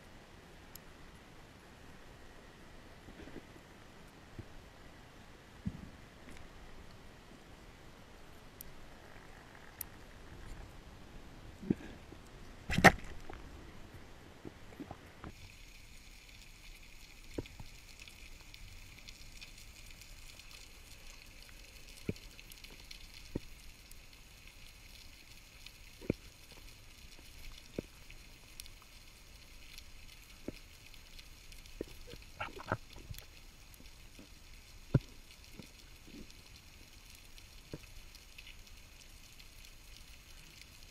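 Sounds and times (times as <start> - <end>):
underwater crackling hiss: 15.2 - 40.9.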